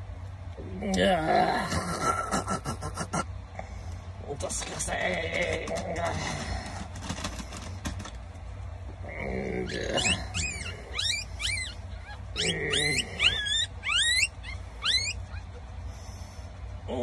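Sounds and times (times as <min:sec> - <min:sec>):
puppy squealing: 0:09.6 - 0:15.8.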